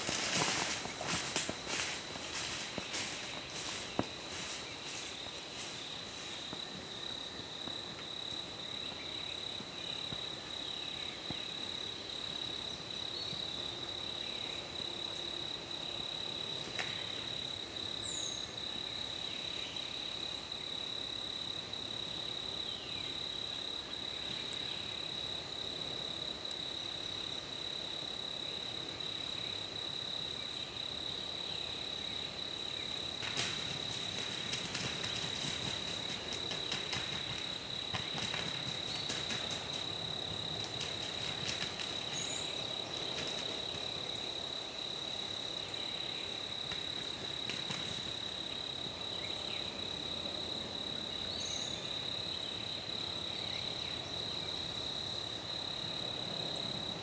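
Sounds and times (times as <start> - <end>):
high-pitched insect trill: 26.8 - 50.2.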